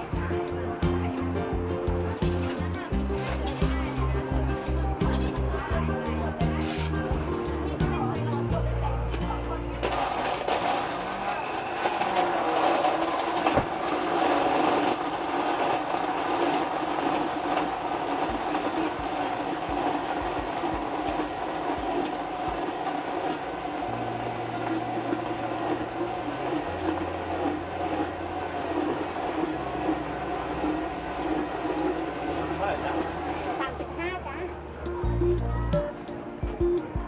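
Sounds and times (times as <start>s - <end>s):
electric blender running: 9.8s - 34.0s.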